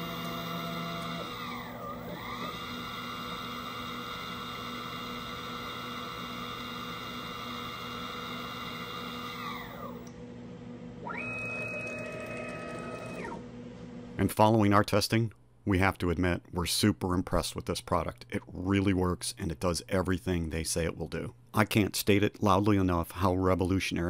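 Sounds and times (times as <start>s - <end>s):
router spindle whining: 0.0s - 10.1s, 11.0s - 13.4s.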